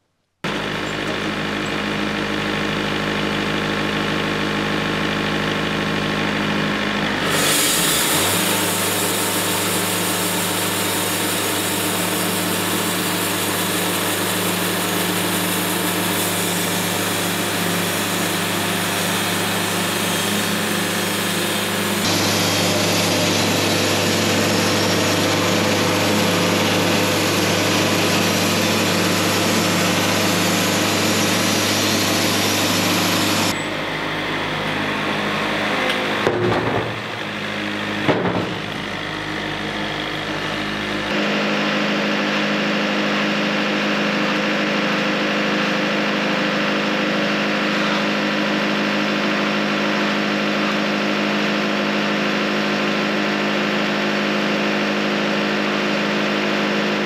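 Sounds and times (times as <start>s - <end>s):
bandsaw mill sawing log: 0.5s - 41.5s.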